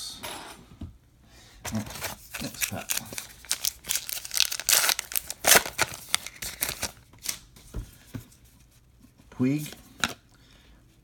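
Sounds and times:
plastic wrapper tearing and crinkling: 2.1s - 7.0s.

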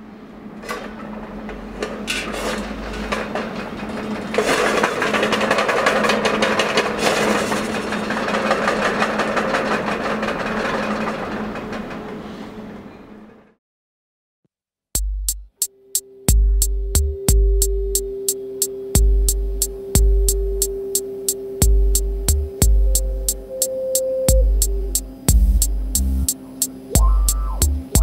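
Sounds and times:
tin cans rattling on rods: 2.9s - 11.4s
low hum: 15.8s - 28.0s.

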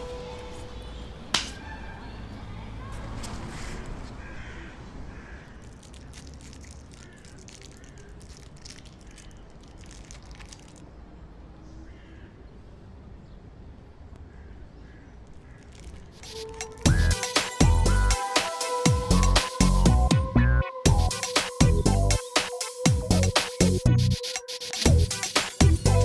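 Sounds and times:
birds calling faintly: 3.7s - 17.1s
wrapper crinkling: 5.5s - 11.0s, 15.2s - 16.9s.

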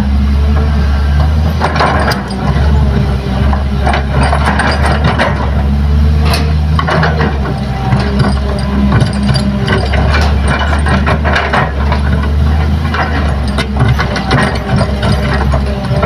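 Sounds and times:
heavy diesel engines running: 0.0s - 16.0s
soil and rock clattering: 0.5s - 16.0s.

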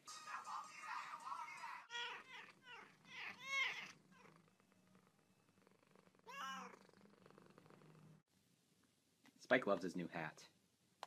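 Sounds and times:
cat meowing: 1.9s - 4.4s, 6.2s - 6.8s.

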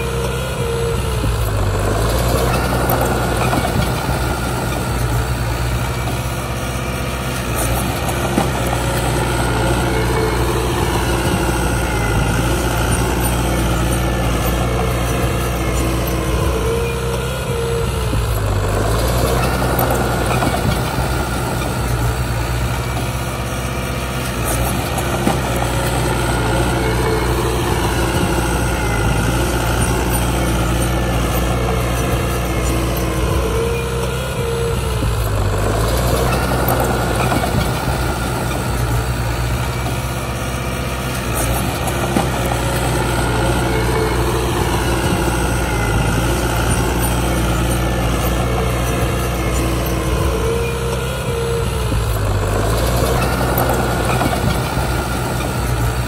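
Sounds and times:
heavy diesel engine running: 0.0s - 56.0s.

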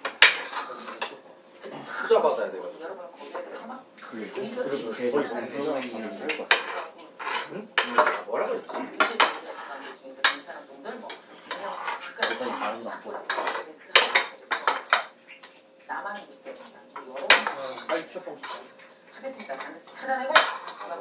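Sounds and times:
cutlery clinking on plates: 5.8s - 15.6s, 16.2s - 21.0s.

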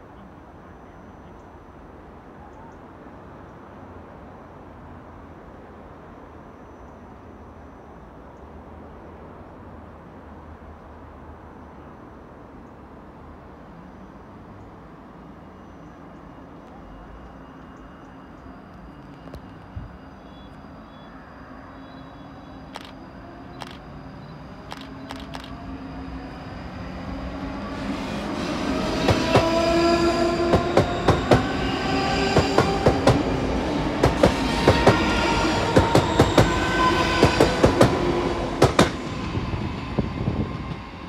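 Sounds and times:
train motors whining: 22.3s - 40.8s
train wheels clacking on rails: 27.9s - 39.2s.

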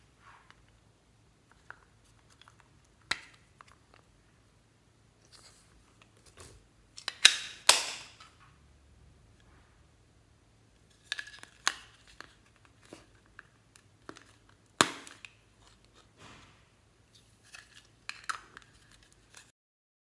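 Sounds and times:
plastic case snapping open: 7.0s - 8.3s.

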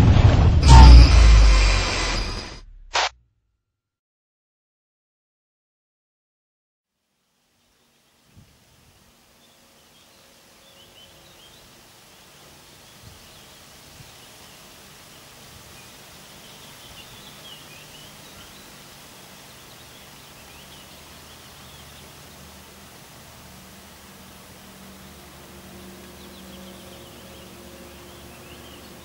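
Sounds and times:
steady hiss: 7.0s - 29.0s
small birds chirping: 9.3s - 23.1s, 24.5s - 29.0s.

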